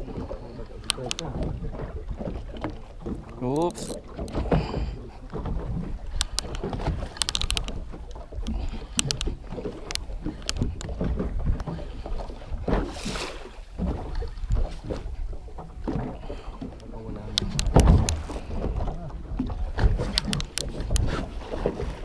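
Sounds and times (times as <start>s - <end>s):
water splashing against boat hull: 0.0s - 22.0s
wind buffeting microphone: 0.0s - 22.0s
fishing reel clicks: 6.1s - 7.8s, 8.9s - 10.7s, 20.1s - 20.7s.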